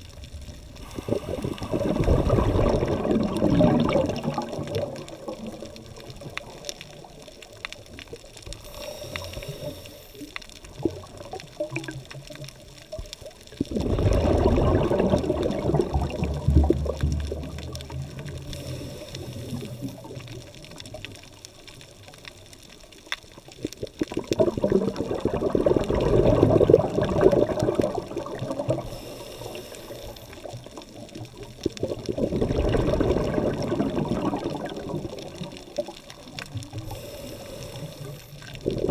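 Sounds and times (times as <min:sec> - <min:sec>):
exhaled bubbles underwater: 0:00.0 - 0:38.9
faint high hiss: 0:36.2 - 0:38.6.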